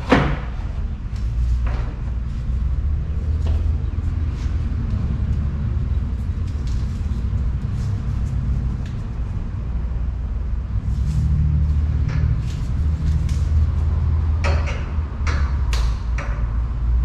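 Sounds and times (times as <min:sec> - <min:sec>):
steady low rumble: 0:00.0 - 0:17.0
clicks and knocks of fan assembly: 0:14.2 - 0:16.7.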